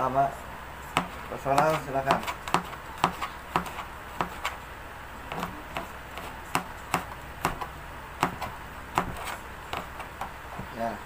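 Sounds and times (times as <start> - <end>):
knife slicing garlic: 0.9 - 4.6, 5.3 - 10.2
knife tapping cutting board: 1.0 - 4.4, 5.3 - 10.7.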